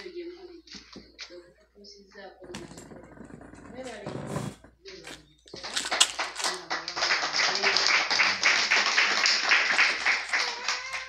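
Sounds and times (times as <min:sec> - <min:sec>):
faint voices: 0:00.0 - 0:11.0
group of people clapping: 0:05.6 - 0:11.0.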